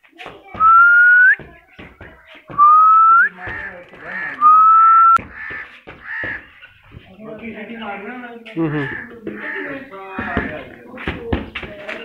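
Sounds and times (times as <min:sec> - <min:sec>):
person whistling: 0:00.6 - 0:01.4, 0:02.6 - 0:03.3, 0:04.4 - 0:05.2
short whistled calls: 0:02.6 - 0:03.4, 0:04.4 - 0:05.2.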